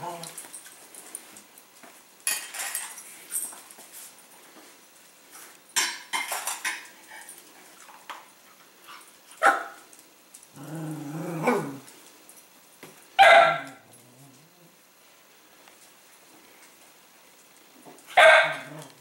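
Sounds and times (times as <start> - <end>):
metal bowls clattering: 2.2 - 3.0
dog barking: 9.4 - 9.8, 13.2 - 13.8, 18.1 - 18.8
dog growling: 10.5 - 11.9, 13.6 - 14.8, 18.6 - 19.0.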